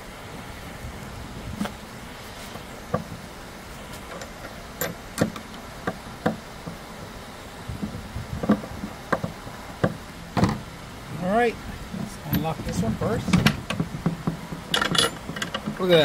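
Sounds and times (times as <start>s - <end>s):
screwdriver clicking on metal latch: 14.7s - 15.7s.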